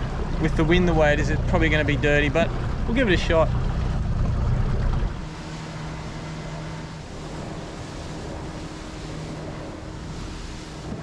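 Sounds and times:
small boat motor running: 0.0 - 11.0
water wash: 0.0 - 11.0.

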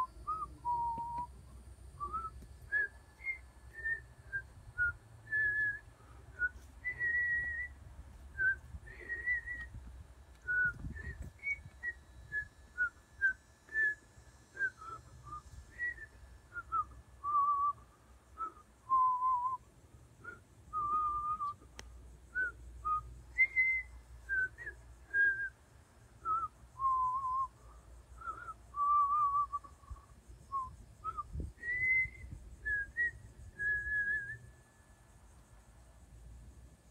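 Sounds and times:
person whistling a slow tune: 0.0 - 19.6, 20.2 - 21.7, 22.3 - 25.6, 26.2 - 34.9
wind rumbling on microphone: 7.0 - 13.8, 29.8 - 34.3.

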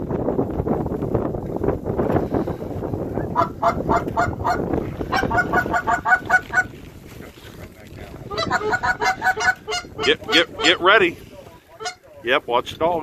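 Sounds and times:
wind rumble on microphone: 0.0 - 13.0
goose honks: 3.4 - 6.7, 8.3 - 11.0, 11.7 - 12.1.

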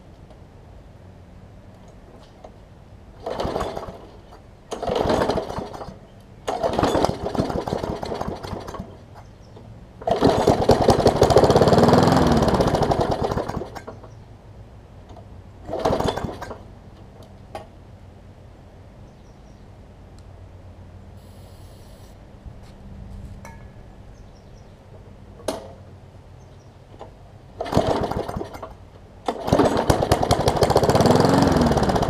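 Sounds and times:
lawn mower engine sputtering: 3.2 - 9.2, 10.0 - 14.2, 15.1 - 16.7, 27.0 - 32.0
starter rope pulls: 27.6 - 32.0.

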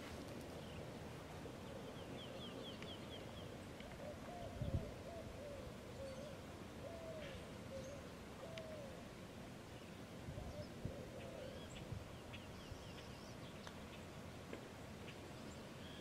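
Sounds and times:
quiet outdoor background noise: 0.0 - 16.0.

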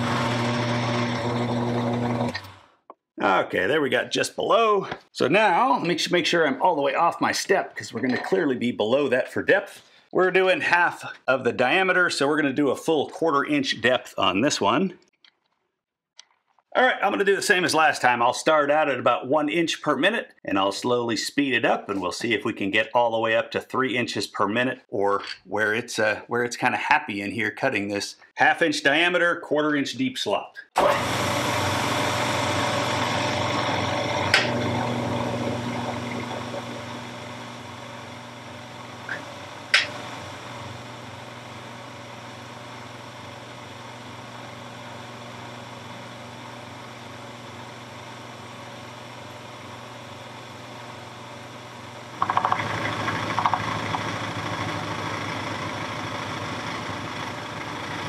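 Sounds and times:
end mill cutting steel: 0.0 - 2.6, 30.8 - 41.2
milling spindle humming: 0.0 - 2.6, 31.1 - 58.0.

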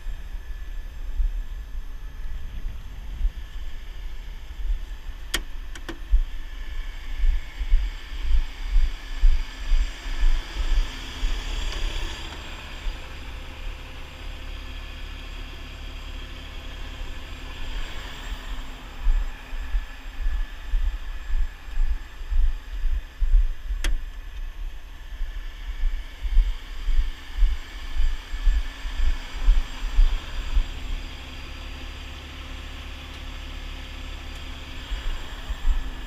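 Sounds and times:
wind rumble on microphone: 0.0 - 13.5, 17.4 - 31.3, 34.8 - 36.0
truck engine running: 0.0 - 36.0
sharp clicks: 5.3 - 6.0, 23.8 - 24.5.

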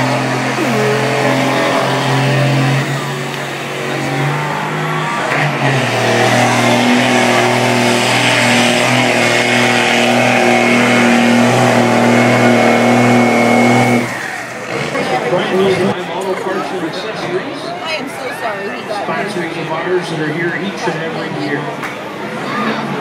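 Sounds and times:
diesel engine at high revs: 0.0 - 16.0.

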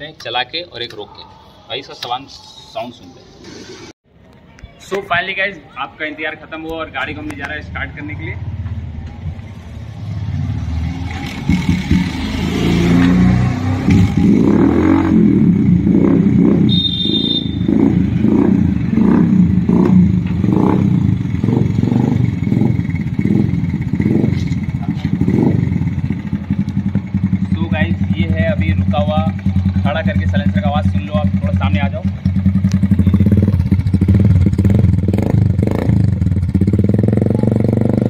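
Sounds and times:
motorcycle engine revving: 8.4 - 38.0.

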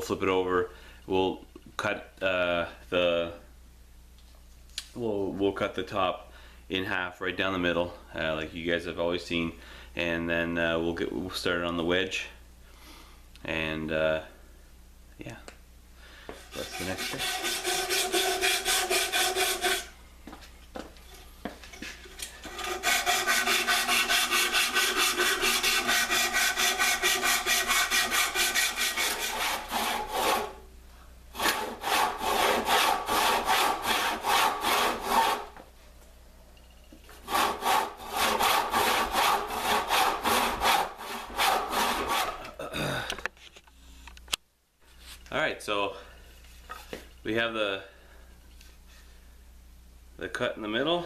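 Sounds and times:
handsaw sawing wood: 16.5 - 19.9, 22.4 - 30.6, 31.3 - 35.6, 37.2 - 42.5.

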